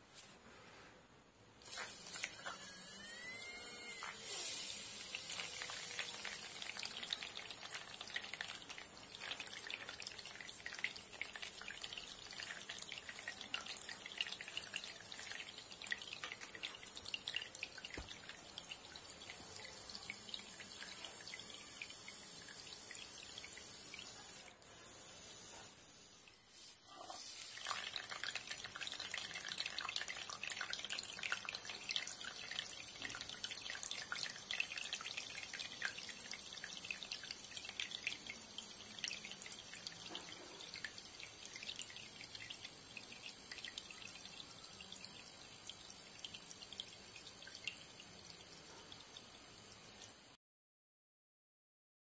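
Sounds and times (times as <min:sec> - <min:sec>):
water pump motor whine: 0:01.7 - 0:06.2
water splashing and trickling: 0:05.0 - 0:24.2, 0:27.4 - 0:50.0.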